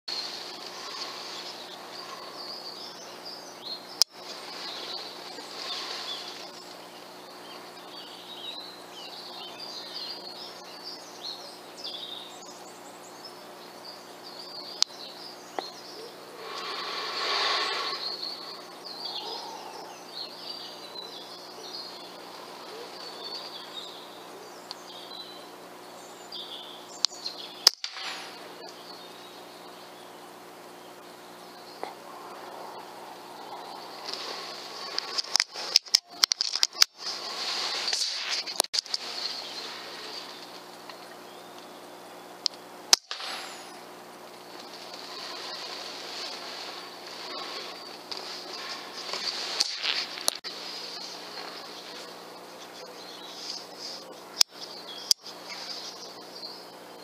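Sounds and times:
small birds chirping: 0.1s - 57.0s
air rifle shots: 27.7s - 28.4s, 42.9s - 43.8s.

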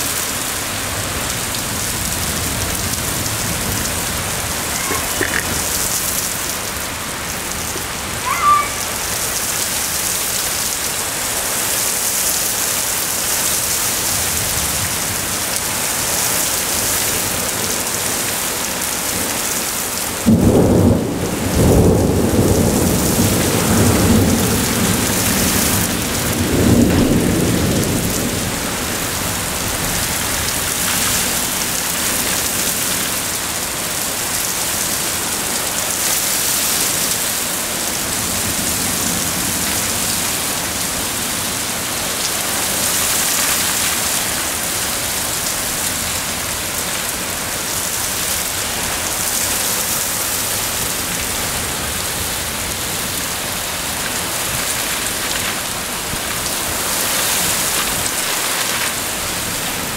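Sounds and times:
heavy rain pouring: 0.0s - 59.9s.

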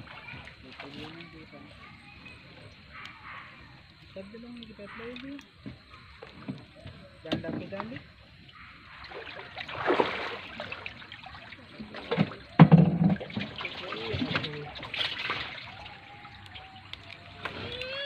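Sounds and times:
water trickling and splashing: 0.0s - 18.0s.

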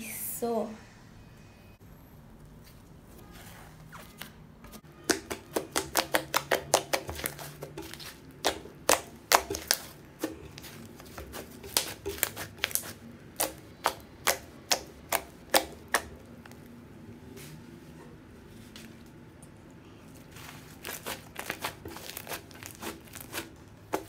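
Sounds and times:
slime clicking and popping: 5.0s - 10.5s, 11.1s - 16.6s.

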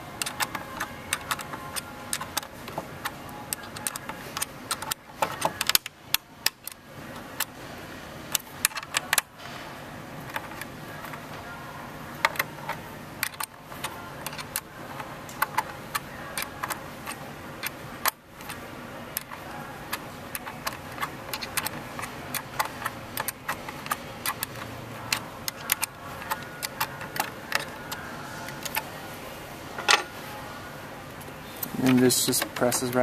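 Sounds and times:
plastic parts clicking and rattling: 0.2s - 6.8s, 12.2s - 28.8s.

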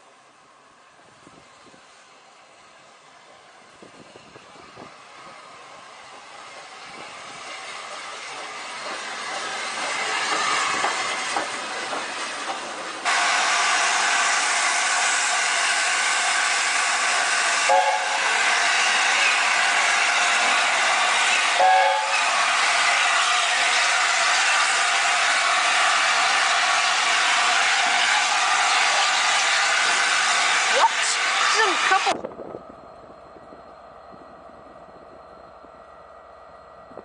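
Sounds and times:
steam locomotive working: 0.0s - 37.0s
loud hiss of steam: 0.9s - 32.2s
short train whistle blips: 17.5s - 18.6s, 21.5s - 22.5s.

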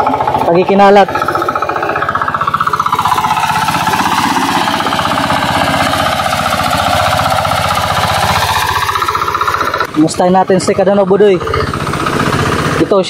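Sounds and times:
hand tractor engine running: 0.0s - 13.0s.

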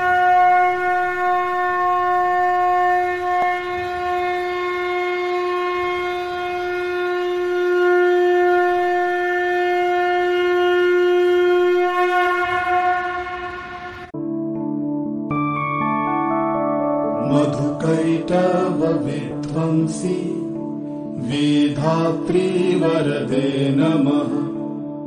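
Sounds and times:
conch shell blown: 0.0s - 14.2s.

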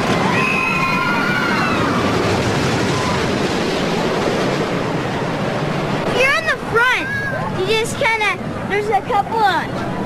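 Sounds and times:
riders screaming: 0.0s - 3.4s
roller coaster rumbling on track: 0.0s - 10.0s.

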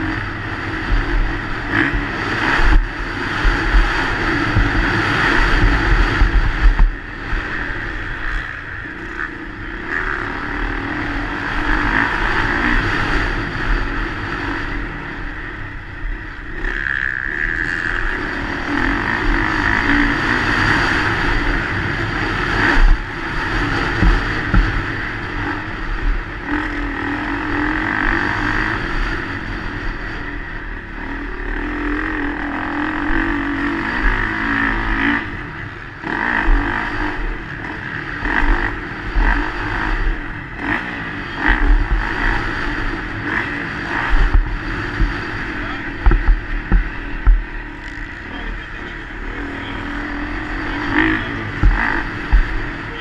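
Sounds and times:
motocross bike engine revving: 0.0s - 53.0s
sharp knocks from bumps: 51.6s - 52.5s.

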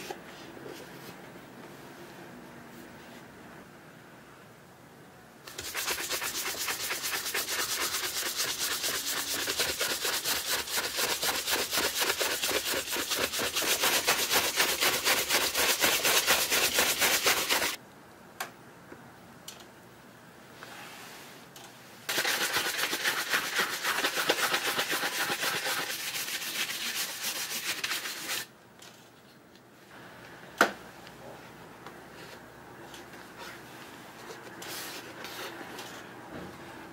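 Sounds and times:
shoe brush buffing strokes: 5.5s - 17.8s.

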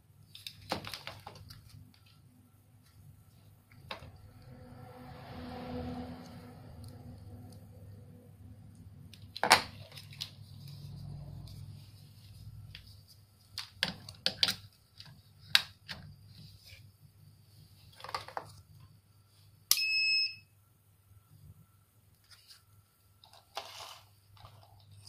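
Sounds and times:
short electronic beep: 19.7s - 20.5s.

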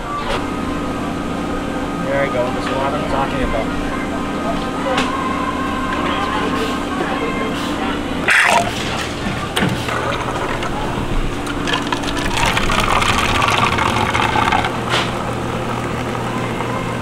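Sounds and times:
coffee machine hum: 0.0s - 17.0s
coffee streaming into cup: 9.6s - 17.0s.

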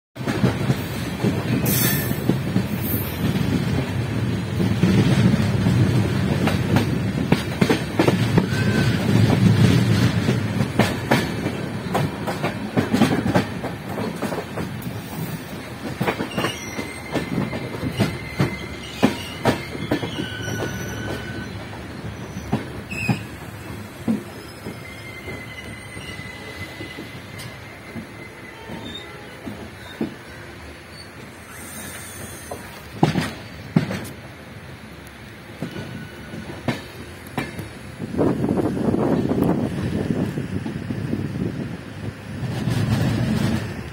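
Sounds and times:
train wheels clattering over rail joints: 0.2s - 30.3s, 32.2s - 34.3s, 42.4s - 43.9s
high wheel squeals: 8.3s - 9.3s, 16.2s - 33.6s.

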